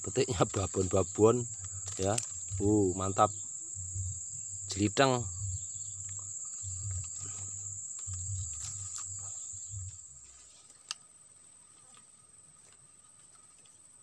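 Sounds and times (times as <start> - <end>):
low rumbles: 0.0 - 10.4
insects buzzing: 0.0 - 14.0.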